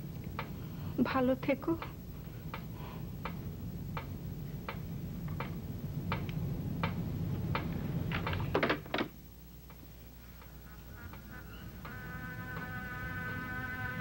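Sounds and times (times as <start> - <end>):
low steady hum: 0.0 - 14.0
evenly spaced ticks: 1.8 - 8.4.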